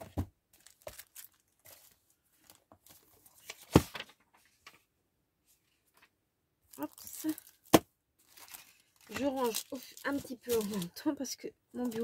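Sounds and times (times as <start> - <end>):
packaging rustling: 0.6 - 4.1, 6.8 - 11.0, 11.8 - 12.0.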